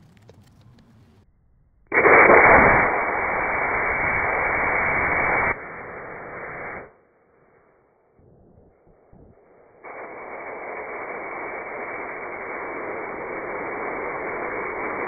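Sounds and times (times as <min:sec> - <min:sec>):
rocket motor hissing: 0:01.9 - 0:06.9, 0:09.8 - 0:15.0.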